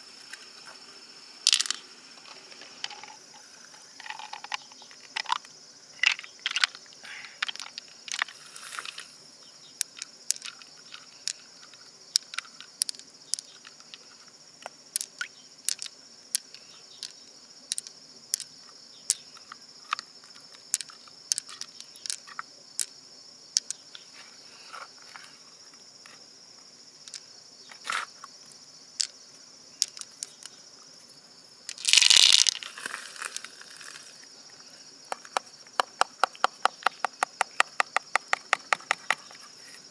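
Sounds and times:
pearls clicking against shell: 1.4 - 1.8, 2.7 - 9.0, 9.7 - 23.0, 23.6 - 24.0, 27.0 - 27.3, 29.0 - 29.2, 29.8 - 30.6, 31.7 - 32.7, 35.1 - 39.4.

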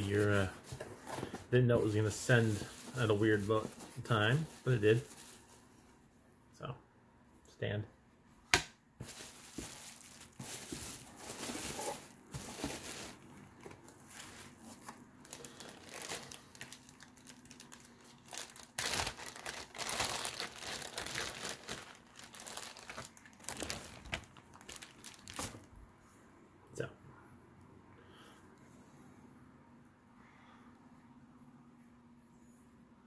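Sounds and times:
plastic packaging crinkling: 0.0 - 5.7, 9.0 - 25.7.

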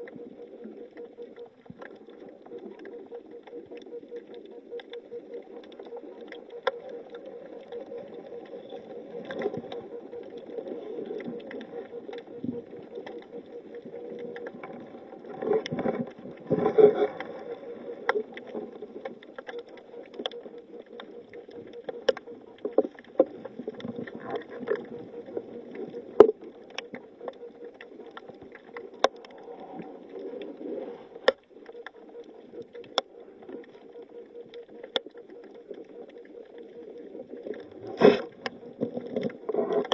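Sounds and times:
underwater hum: 0.0 - 39.9.

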